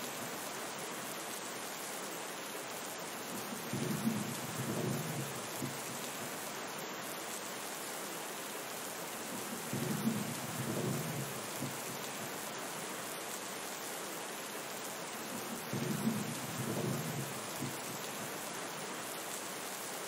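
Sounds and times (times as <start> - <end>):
steady rain falling: 0.0 - 20.0
low rumble of thunder: 3.3 - 6.2, 9.4 - 12.2, 15.3 - 18.0.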